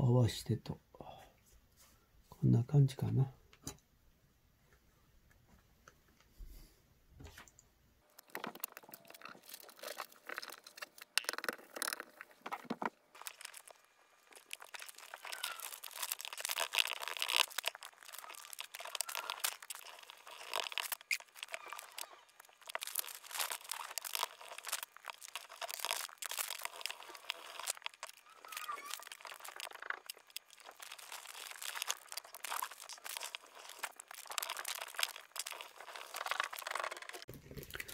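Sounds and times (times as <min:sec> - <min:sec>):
paper rustling and crinkling: 0:08.2 - 0:37.9.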